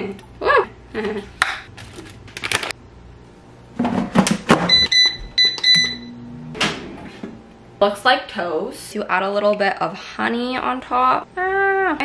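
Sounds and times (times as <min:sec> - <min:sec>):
air fryer button beeps: 0:04.7 - 0:06.2.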